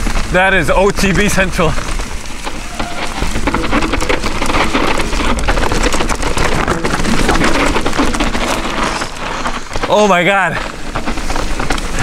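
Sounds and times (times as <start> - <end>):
mountain bike clattering on trail: 0.0 - 12.0.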